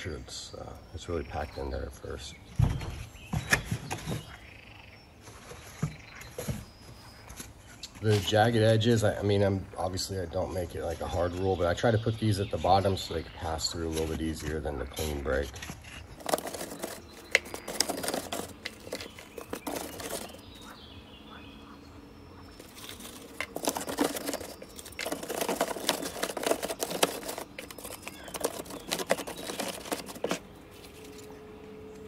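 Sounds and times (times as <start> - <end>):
egg crates rustling and knocking: 2.5 - 4.5, 5.2 - 9.2, 13.7 - 20.8, 22.5 - 31.3.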